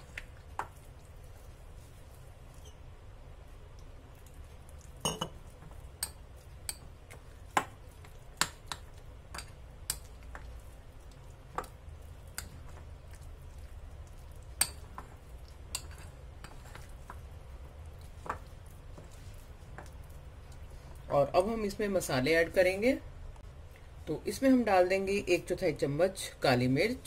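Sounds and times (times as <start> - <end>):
spoon clinking in glass bowl: 5.0 - 5.4.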